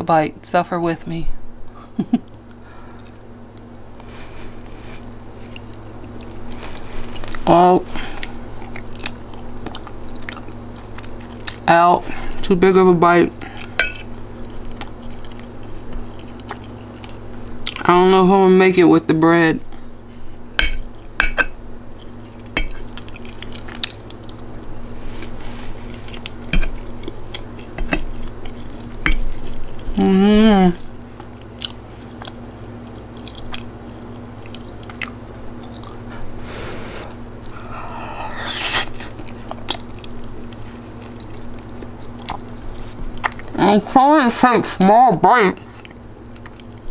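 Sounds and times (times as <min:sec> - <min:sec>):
person chewing with mouth clicks: 0:02.2 - 0:07.5, 0:08.1 - 0:11.6, 0:13.6 - 0:17.9, 0:22.0 - 0:30.0, 0:30.7 - 0:36.4, 0:37.1 - 0:43.6, 0:45.8 - 0:46.9
person humming: 0:30.0 - 0:30.9.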